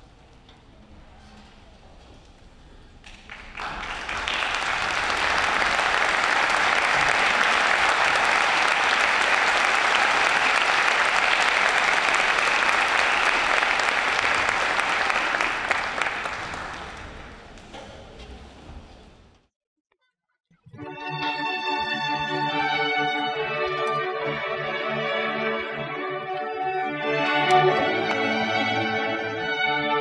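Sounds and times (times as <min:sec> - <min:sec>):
audience applauding: 0:03.0 - 0:17.7.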